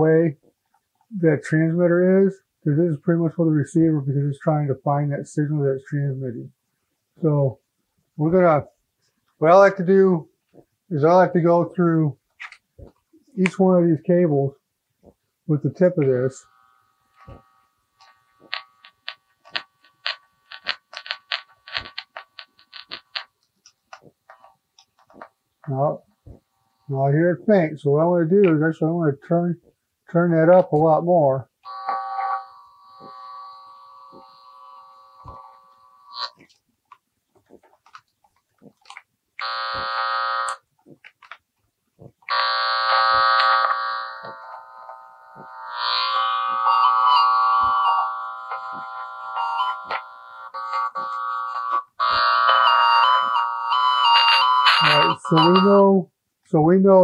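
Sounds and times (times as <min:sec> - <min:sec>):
tone probe crackling clicks: 0:17.1 - 0:26.4, 0:31.6 - 0:55.8
faint electronic tone: 0:31.7 - 0:36.4, 0:42.9 - 0:55.9.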